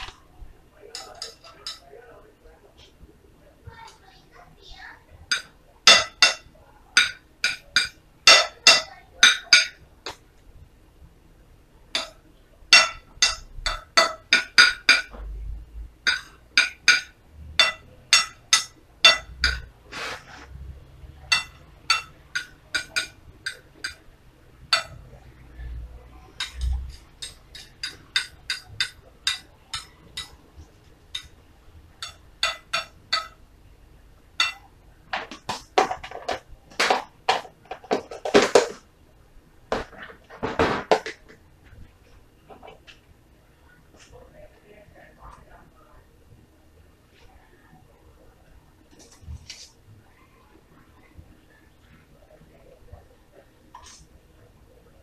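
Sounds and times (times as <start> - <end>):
metal spoon clinking on ceramic plate: 5.3 - 6.4, 7.0 - 9.8, 12.0 - 15.1, 16.1 - 19.7, 21.3 - 24.0, 24.7 - 25.0, 26.4 - 30.4, 32.0 - 33.4, 34.4 - 34.7.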